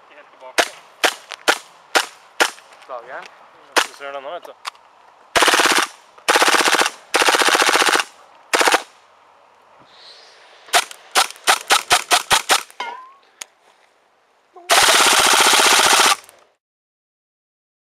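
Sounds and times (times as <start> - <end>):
airsoft gun firing: 0.6 - 2.6, 5.4 - 8.9, 10.7 - 12.7, 14.7 - 16.3.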